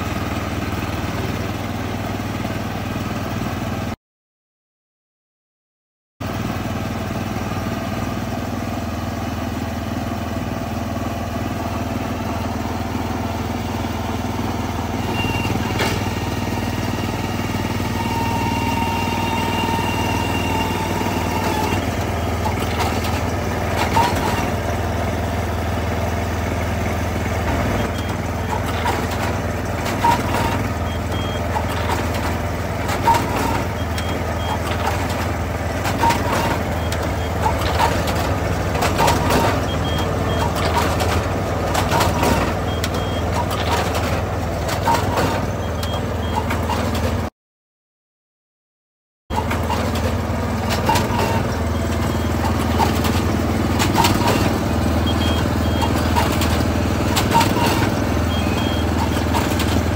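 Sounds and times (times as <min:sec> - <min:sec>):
planter engine running: 0:00.0 - 0:04.0, 0:06.2 - 0:47.3, 0:49.3 - 0:59.9
mechanical clicks and knocks: 0:27.4 - 0:47.2, 0:49.4 - 0:59.9.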